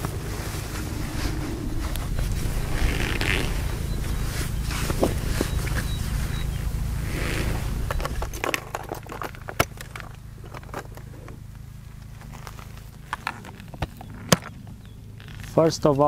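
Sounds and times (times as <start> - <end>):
textile suit rustling: 0.0 - 8.4.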